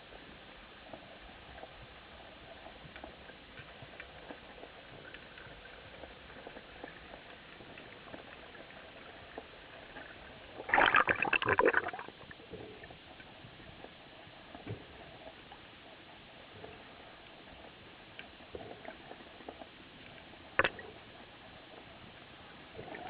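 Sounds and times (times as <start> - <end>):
air bubbles bubbling: 6.6 - 12.4.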